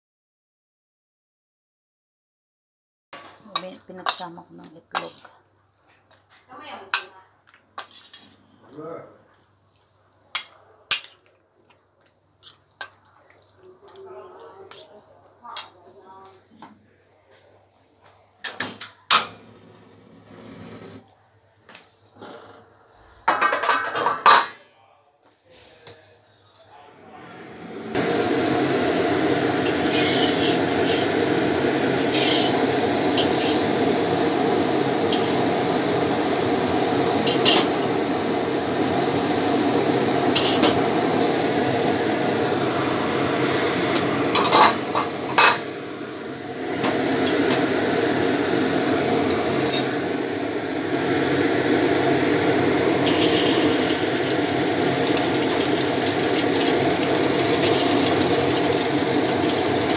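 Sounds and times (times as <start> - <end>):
gas stove rushing: 18.4 - 21.0, 27.2 - 59.9.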